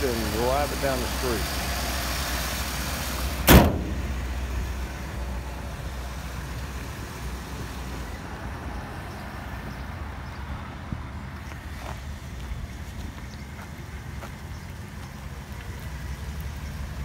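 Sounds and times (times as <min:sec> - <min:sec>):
car engine idling: 0:00.0 - 0:10.4
car hood slamming shut: 0:03.4 - 0:04.2.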